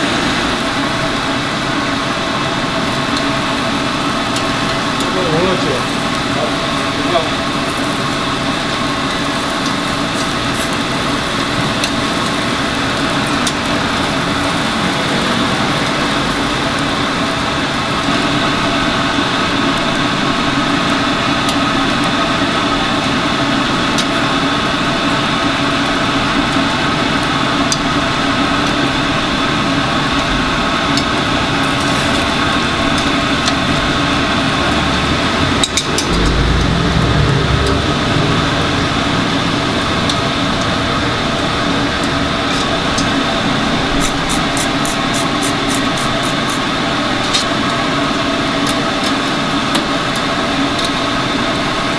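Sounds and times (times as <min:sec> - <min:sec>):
machine humming: 0:31.2 - 0:44.0.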